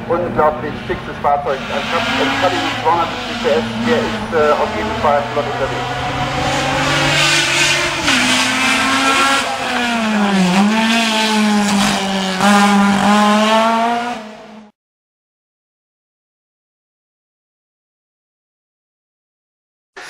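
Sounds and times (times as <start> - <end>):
race car engine at high revs: 0.0 - 14.8.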